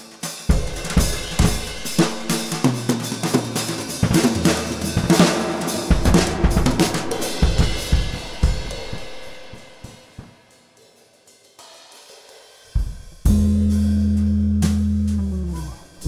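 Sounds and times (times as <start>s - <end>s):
drum kit with crashing cymbals: 0.0s - 16.0s
loud sustained low note: 13.3s - 16.0s.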